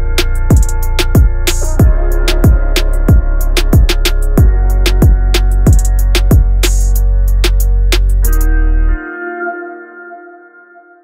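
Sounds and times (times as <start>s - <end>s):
deep kick drums: 0.0s - 6.7s
held bass: 0.0s - 9.0s
hi-hat ticks: 0.2s - 8.5s.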